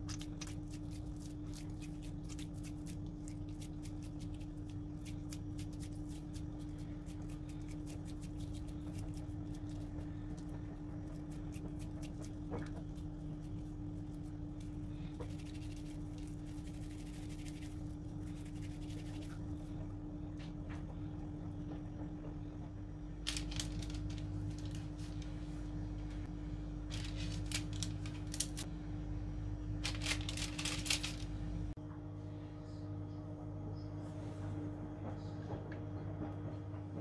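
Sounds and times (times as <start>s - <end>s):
paper crinkling: 0.0s - 10.2s, 11.1s - 19.4s, 23.3s - 25.4s, 26.8s - 28.7s, 29.8s - 31.4s
low electrical hum: 0.0s - 37.0s.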